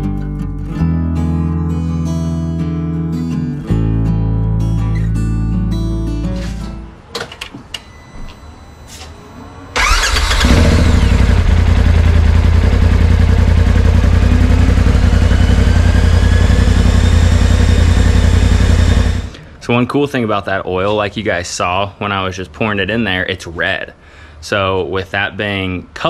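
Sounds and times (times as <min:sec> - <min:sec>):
engine cranking and idling: 0:09.7 - 0:19.4.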